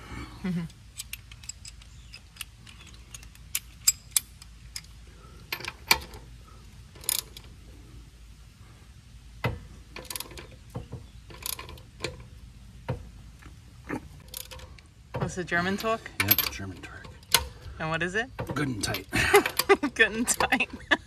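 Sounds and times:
ratchet wrench clicking: 0.8s - 6.1s.

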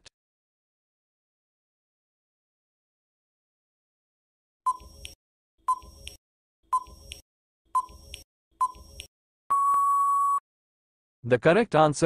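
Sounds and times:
short electronic beeps: 4.7s - 5.0s, 7.8s - 10.4s.

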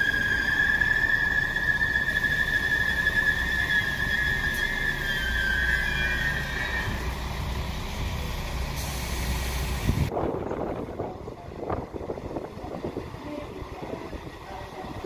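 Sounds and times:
high steady squeal: 0.0s - 7.5s
diesel railcar engine humming: 0.0s - 15.0s.

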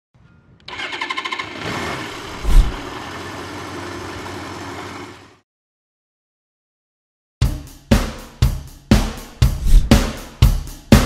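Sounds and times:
motorcycle engine running: 0.7s - 5.4s.

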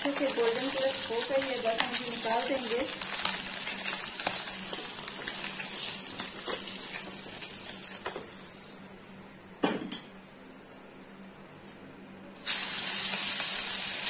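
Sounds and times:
fish sizzling in hot oil: 0.0s - 8.6s, 12.4s - 14.0s.

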